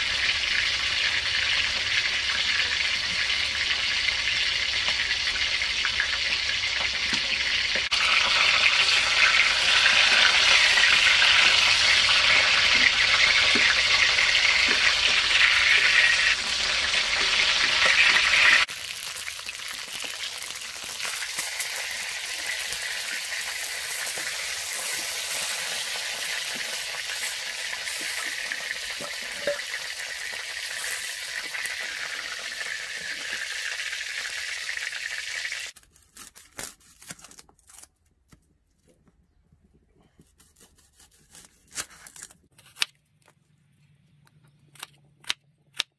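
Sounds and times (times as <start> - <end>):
fish sizzling in hot oil: 0.0 - 35.8.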